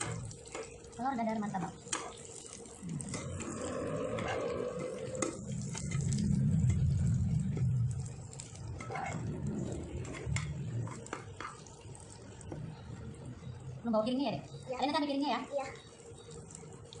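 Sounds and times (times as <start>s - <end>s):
egg frying in oil: 0.0s - 17.0s
metal spatula scraping a pan: 1.9s - 6.8s, 8.5s - 11.7s.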